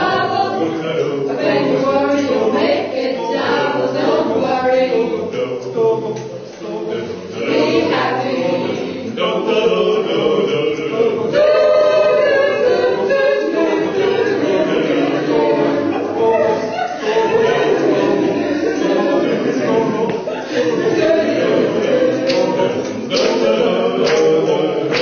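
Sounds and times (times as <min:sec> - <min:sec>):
choir singing in parts: 0:00.0 - 0:25.0.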